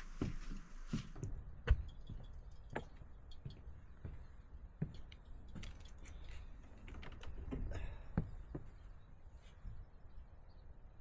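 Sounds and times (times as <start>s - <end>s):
clicks and knocks on boat deck: 1.2s - 4.2s.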